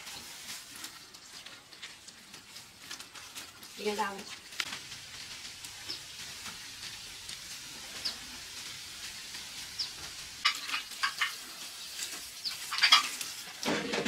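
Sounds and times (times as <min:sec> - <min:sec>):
plastic bags crinkling: 0:00.0 - 0:06.9
small bird chirping: 0:09.6 - 0:10.0, 0:11.8 - 0:13.0.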